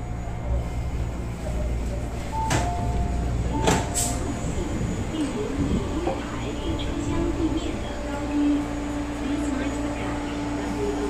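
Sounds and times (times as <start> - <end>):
low hum of stopped train: 0.0 - 11.0
train door clunks: 2.3 - 4.4.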